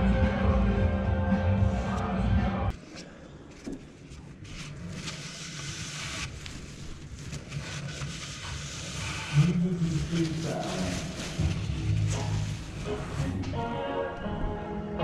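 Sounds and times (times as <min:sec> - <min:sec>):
stiff cloth rustling and crackling: 0:09.8 - 0:13.4.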